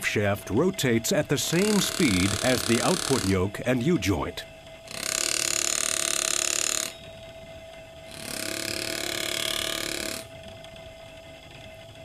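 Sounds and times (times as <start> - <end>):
electric motor humming: 0.0 - 12.0
card buzzing against sprocket teeth: 0.9 - 3.6, 4.8 - 10.4.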